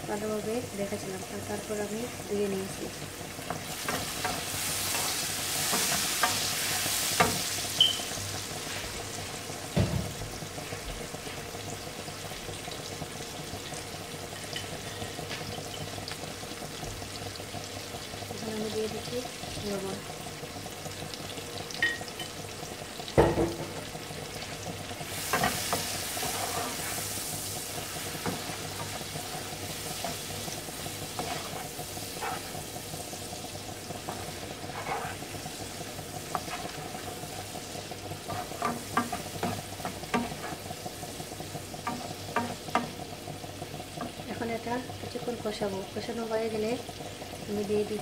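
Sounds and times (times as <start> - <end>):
prawns sizzling in hot oil: 0.0 - 48.0
spatula scraping a pan: 3.4 - 9.0, 24.3 - 43.1
spatula knocking against pan: 38.3 - 40.6, 41.8 - 43.1.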